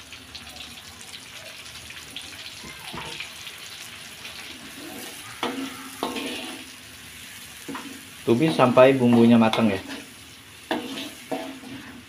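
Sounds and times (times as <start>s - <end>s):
paste sizzling in hot oil: 0.0s - 12.0s
metal spatula scraping wok: 4.4s - 12.0s.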